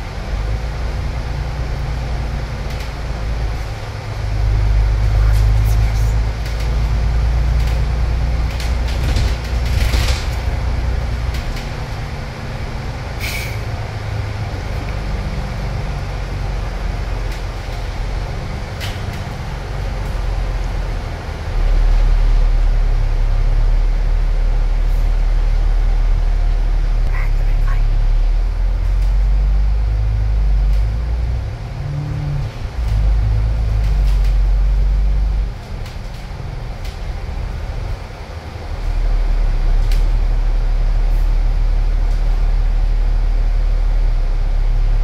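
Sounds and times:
bus engine running: 0:00.0 - 0:45.0
air brake hiss: 0:13.2 - 0:13.7.

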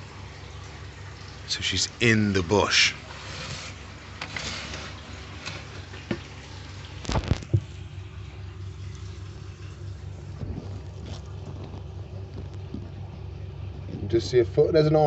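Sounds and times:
steady low hum: 0:00.0 - 0:15.0
rustling of artificial plants: 0:02.0 - 0:07.9, 0:08.8 - 0:14.4.

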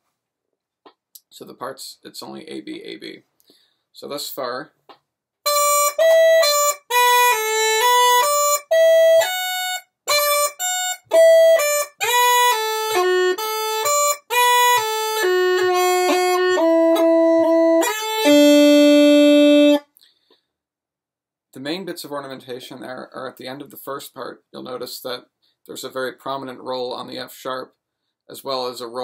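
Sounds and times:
bagpipe chanter playing a reel: 0:05.5 - 0:19.8.

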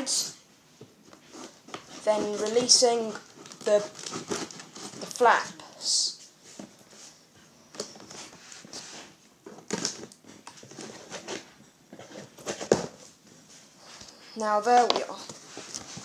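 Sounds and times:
cardboard rustles and knocks: 0:09.4 - 0:13.2.

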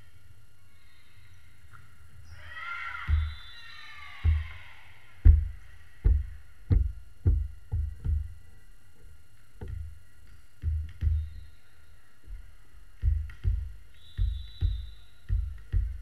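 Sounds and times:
dull low thumps: 0:05.2 - 0:08.4, 0:10.6 - 0:11.3, 0:13.0 - 0:16.0.

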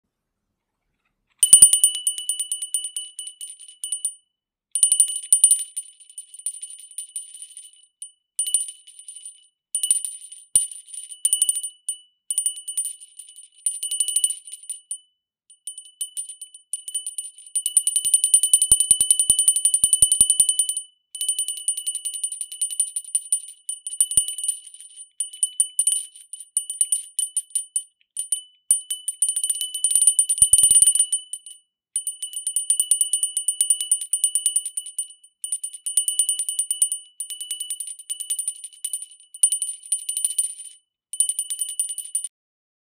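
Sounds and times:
hand bell ringing rapidly: 0:01.4 - 0:04.1, 0:22.1 - 0:42.3.

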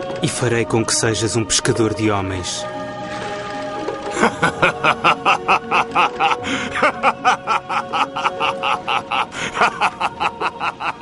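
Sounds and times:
background music: 0:00.0 - 0:11.0
man laughing: 0:04.2 - 0:11.0.

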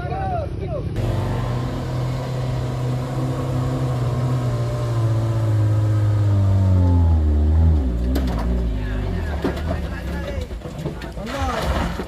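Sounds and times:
truck diesel engine running: 0:01.0 - 0:10.2.

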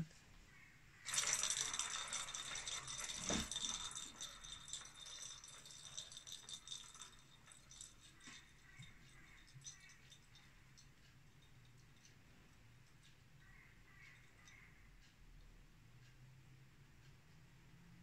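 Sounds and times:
plastic ball rattling around track: 0:01.0 - 0:10.9.

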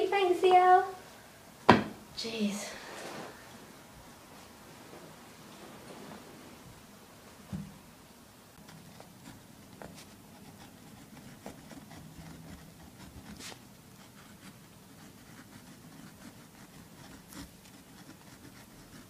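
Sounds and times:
quill pen scratching paper: 0:08.6 - 0:19.0.

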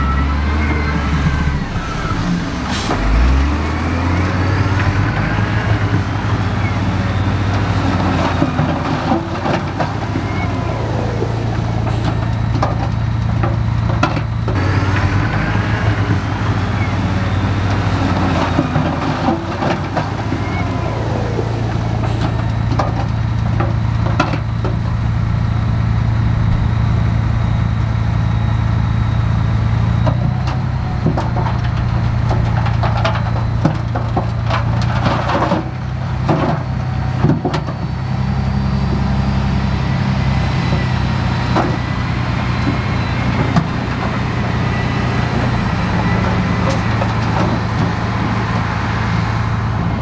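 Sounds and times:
diesel engine running: 0:00.0 - 0:50.0
sharp knocks and clanks: 0:22.0 - 0:25.7.

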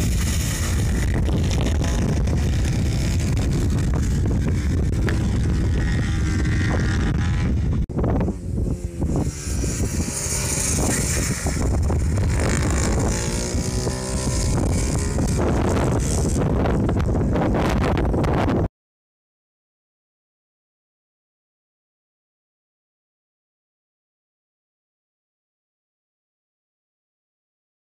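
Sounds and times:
minibike engine revving: 0:00.0 - 0:18.4
wind buffeting microphone: 0:00.0 - 0:18.7.

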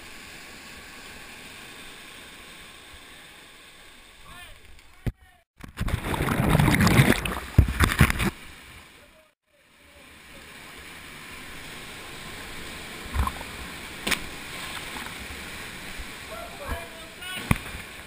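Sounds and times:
stream and waterfall rushing: 0:00.0 - 0:04.2, 0:08.3 - 0:18.0
splash into water: 0:05.7 - 0:08.4, 0:14.0 - 0:15.2.

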